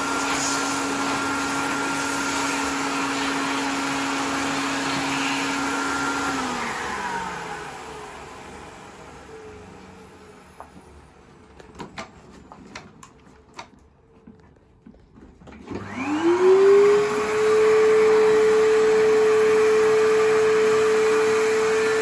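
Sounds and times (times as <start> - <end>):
vacuum cleaner motor whine: 0.0 - 11.3, 15.5 - 22.0.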